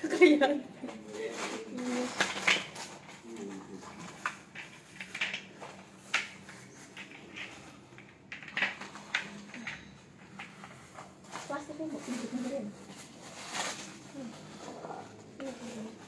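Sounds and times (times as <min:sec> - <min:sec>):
plastic chair parts clicking: 0:01.8 - 0:11.5.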